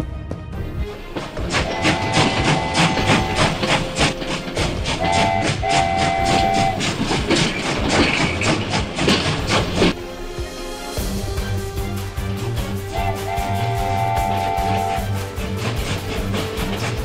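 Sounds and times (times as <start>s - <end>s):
train wheels clacking on rails: 0.8s - 10.0s, 11.0s - 17.0s
train horn blasts: 1.5s - 7.1s, 12.9s - 16.9s.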